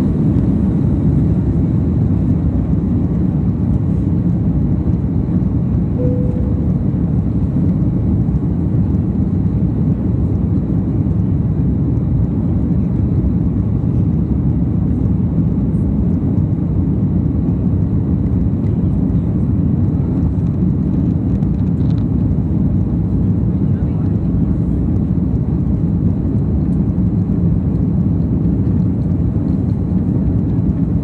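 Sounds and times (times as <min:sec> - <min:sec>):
jet engines and rushing air: 0:00.0 - 0:10.8.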